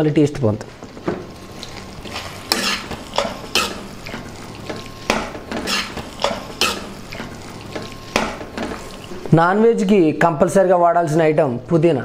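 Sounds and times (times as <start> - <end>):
spoon scraping metal pot: 1.6 - 9.2.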